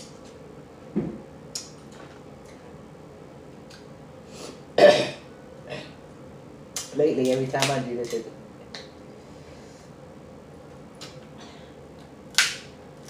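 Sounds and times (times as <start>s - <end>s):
person burping: 4.8s - 5.9s.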